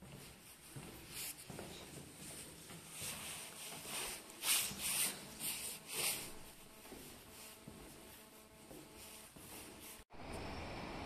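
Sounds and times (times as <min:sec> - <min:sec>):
footsteps on tiled floor: 0:00.0 - 0:10.1.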